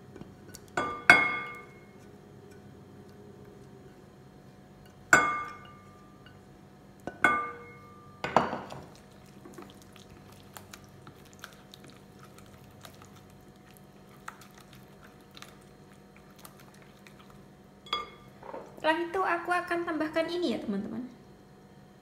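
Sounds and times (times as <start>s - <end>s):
cookware clinking: 5.2s - 6.4s, 7.1s - 8.9s, 17.9s - 18.7s.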